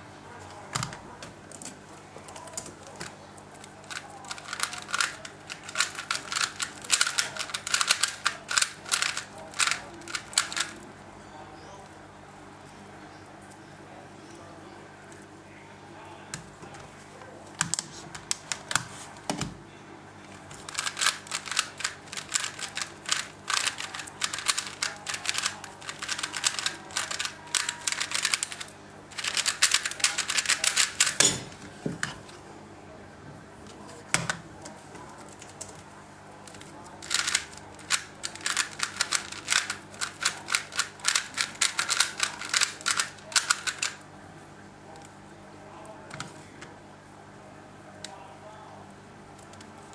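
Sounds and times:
plastic puzzle cube clicking: 0:03.9 - 0:10.7, 0:20.6 - 0:31.2, 0:36.5 - 0:44.0.

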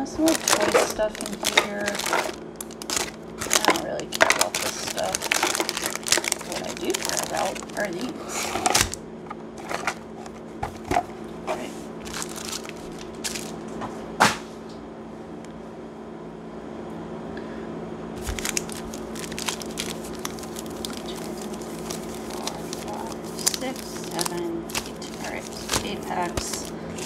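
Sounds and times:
foil wrappers crinkling: 0:00.0 - 0:09.0, 0:09.6 - 0:11.0, 0:12.0 - 0:13.7, 0:18.2 - 0:27.0.

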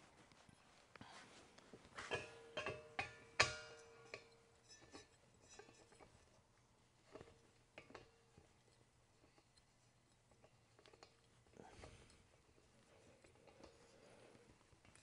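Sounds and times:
metal cylinder clinking and knocking: 0:02.0 - 0:06.4, 0:07.0 - 0:13.8.

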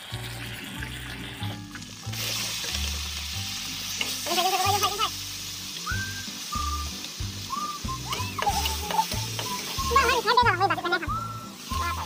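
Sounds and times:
background music: 0:00.0 - 0:12.0
meat sizzling in a pan: 0:00.0 - 0:12.0.

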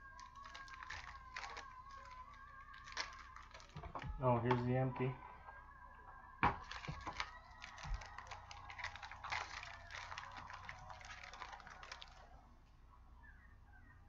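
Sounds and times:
foil wrapper crinkling: 0:00.0 - 0:04.9, 0:06.4 - 0:12.4.

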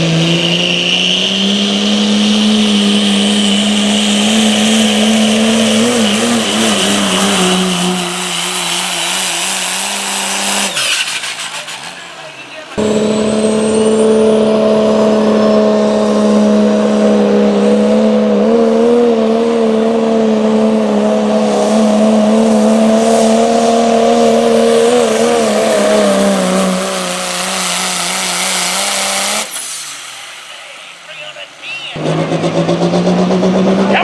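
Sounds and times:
diesel engine under full load: 0:00.0 - 0:34.0.

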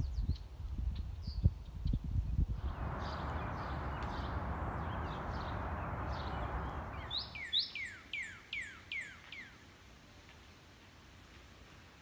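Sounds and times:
faint bird chirps: 0:02.6 - 0:09.6
background hiss: 0:02.6 - 0:12.0.

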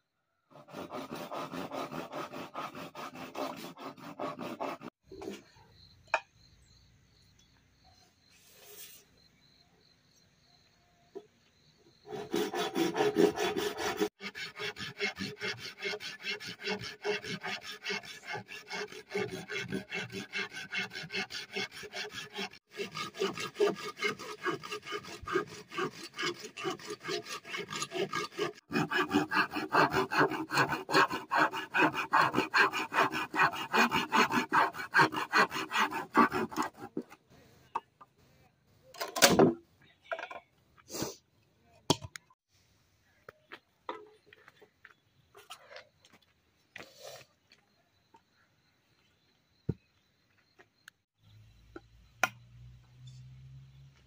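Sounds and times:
knife scraping bamboo pole: 0:00.5 - 0:05.4, 0:12.1 - 0:37.2.

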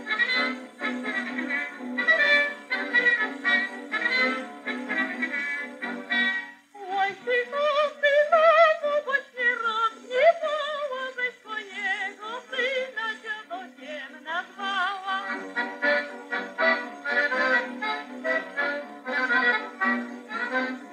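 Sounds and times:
high voice singing with vibrato: 0:06.8 - 0:20.9.

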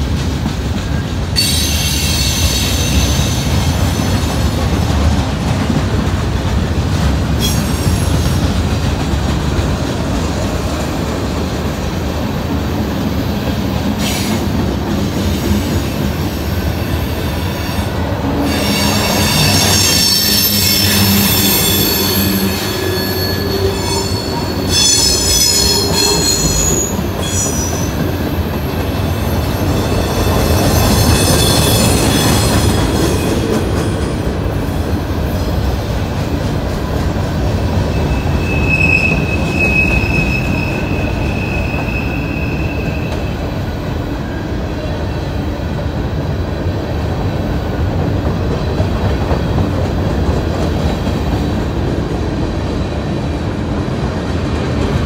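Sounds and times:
freight train wheels rumbling: 0:00.0 - 0:55.0
high-pitched wheel squeal: 0:18.4 - 0:28.0, 0:37.9 - 0:43.4.

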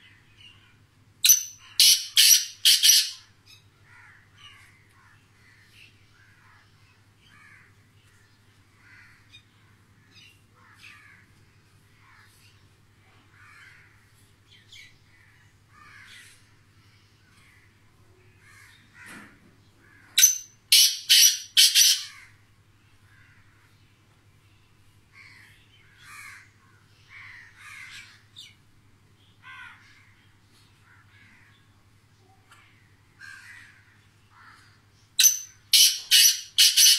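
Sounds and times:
low steady hum: 0:00.0 - 0:36.9
soft chirping calls: 0:01.2 - 0:03.6, 0:20.2 - 0:22.2, 0:35.0 - 0:36.9
bird harsh grating call: 0:01.3 - 0:03.2, 0:20.0 - 0:22.3, 0:35.2 - 0:36.9.

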